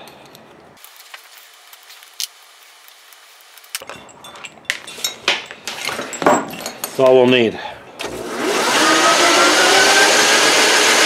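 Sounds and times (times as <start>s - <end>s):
metal clinks and knocks: 3.8s - 7.4s.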